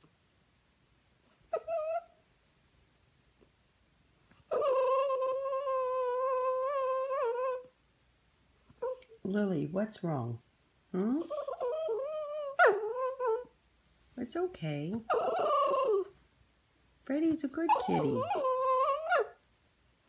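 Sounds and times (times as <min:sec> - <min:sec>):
small dog whining: 0:01.4 - 0:02.2, 0:04.4 - 0:07.7, 0:08.8 - 0:09.2, 0:11.0 - 0:13.5, 0:15.0 - 0:16.2, 0:17.7 - 0:19.4.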